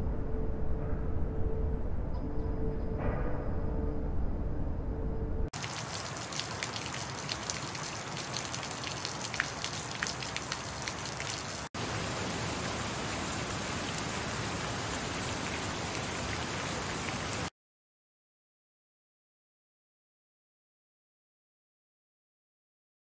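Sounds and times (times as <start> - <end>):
crackling raindrops: 5.6 - 17.5
rain hiss: 5.6 - 17.5.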